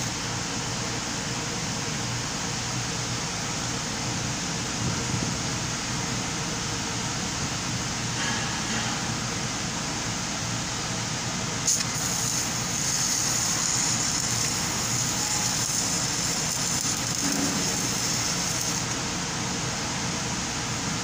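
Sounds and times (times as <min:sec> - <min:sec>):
shop noise rumble: 0:08.0 - 0:21.0
welding arc click: 0:11.6 - 0:19.0
welding arc crackling and hissing: 0:11.6 - 0:19.4.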